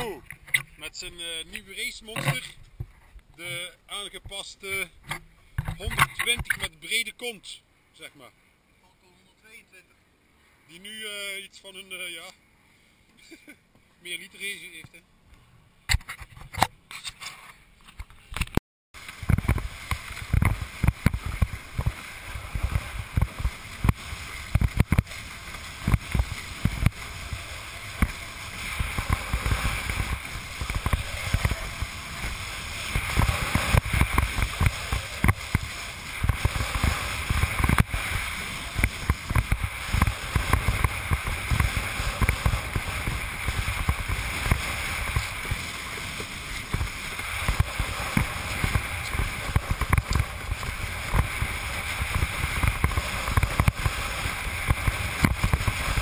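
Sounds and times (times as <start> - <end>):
water rushing along hull: 19.0 - 56.0.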